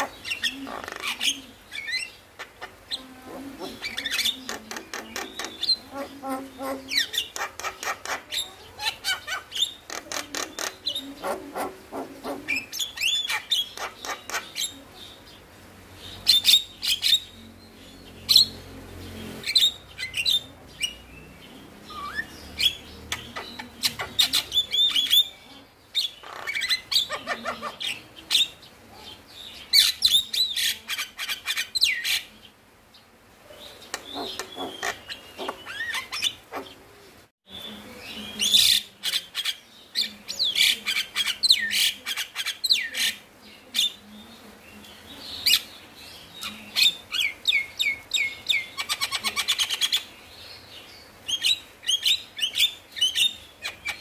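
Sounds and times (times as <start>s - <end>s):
myna clicking chatter: 0.0s - 14.7s, 33.8s - 36.8s.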